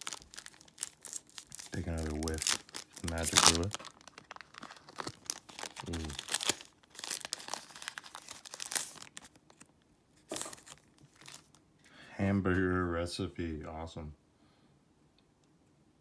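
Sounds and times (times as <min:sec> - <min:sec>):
foil wrapper crinkling: 0:00.0 - 0:09.7, 0:10.3 - 0:11.6.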